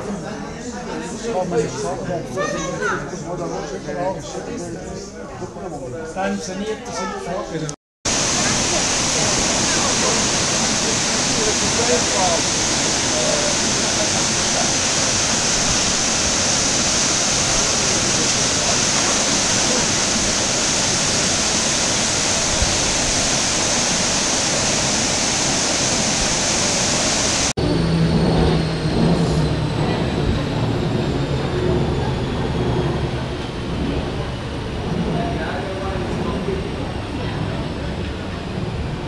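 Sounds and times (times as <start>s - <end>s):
waterfall rushing: 8.1s - 27.6s
high whine falling in pitch: 8.1s - 32.8s
funicular car humming: 8.1s - 39.0s.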